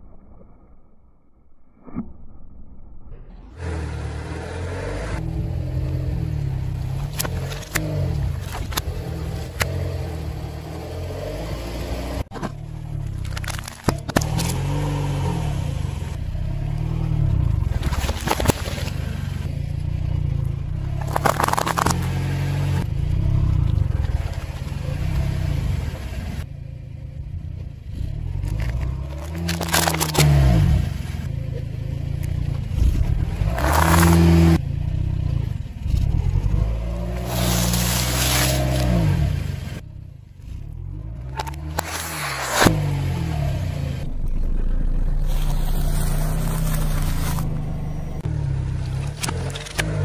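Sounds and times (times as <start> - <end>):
car engine running: 3.3 - 50.0
sharp crunches and cracks: 12.3 - 14.8, 17.6 - 19.2, 20.8 - 22.7, 28.3 - 30.8, 32.1 - 34.6, 44.1 - 48.0
tyre crushing objects on asphalt: 20.8 - 22.8, 32.8 - 34.6.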